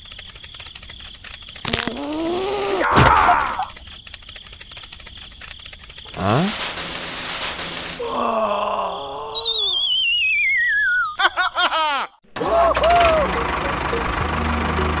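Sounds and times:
rattle of quick clicks: 0.0 - 8.0
silly groaning voice: 1.7 - 3.7, 8.0 - 9.8
falling warbling whistle: 9.4 - 11.2
bouncy chirps: 9.4 - 11.5.

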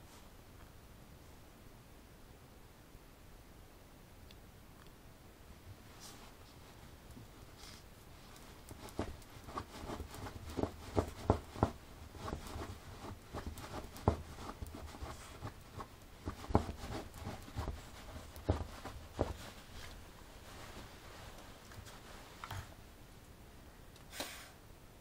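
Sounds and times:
dog rolling and rustling: 5.9 - 22.8.

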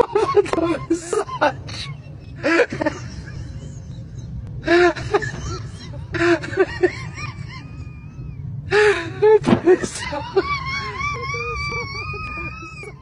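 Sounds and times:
people snickering and laughing: 0.0 - 8.2
train carriage rumble: 0.0 - 13.0.

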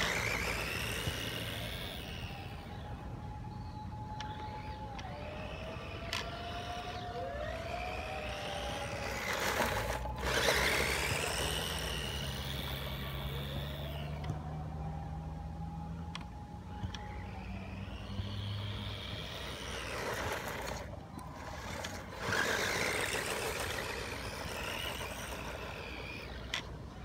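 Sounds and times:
tyres scrabbling on gravelly dirt: 0.0 - 2.0, 8.3 - 13.8, 18.9 - 27.0
toy truck motor whining: 0.0 - 14.8, 15.8 - 27.0.

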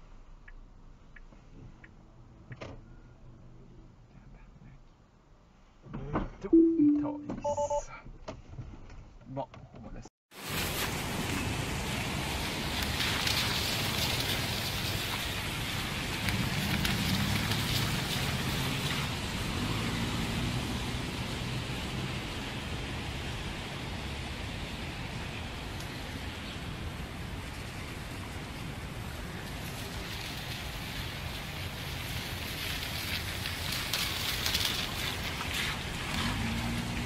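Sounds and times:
traffic hiss on wet road: 10.3 - 37.0.

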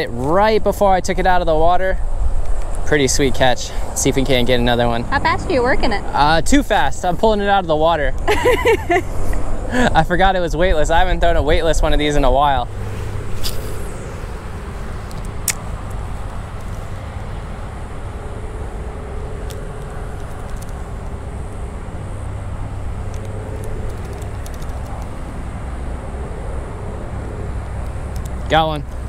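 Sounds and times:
distant engine hum: 0.0 - 29.0
low outdoor rumble: 0.0 - 29.0
sharp click: 15.0 - 16.0.

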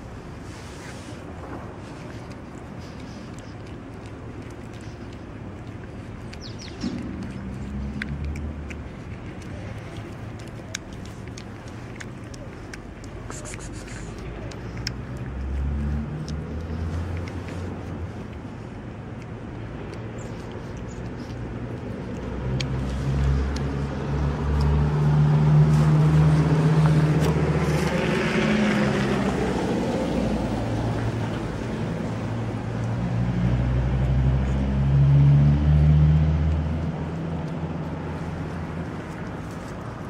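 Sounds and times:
engine humming: 0.0 - 40.0
vehicle passing by: 0.4 - 40.0.

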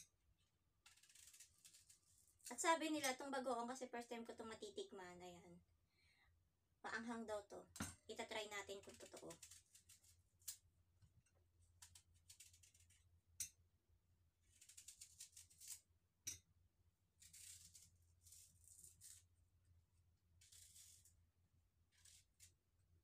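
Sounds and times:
knife scraping mango skin: 0.9 - 2.5, 8.9 - 10.6, 14.5 - 15.9, 17.2 - 19.3, 20.4 - 21.2, 21.9 - 22.6.

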